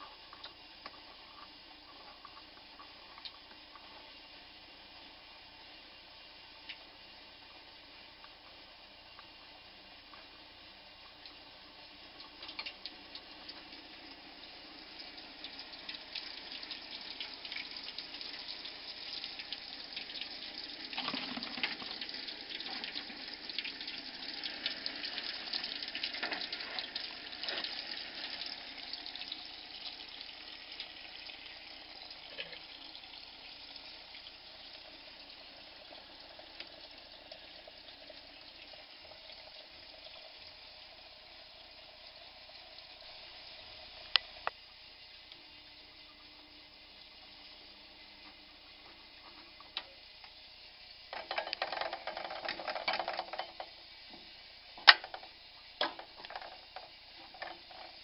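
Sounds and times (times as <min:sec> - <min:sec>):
water splashing in a bucket: 0:20.8 - 0:23.8.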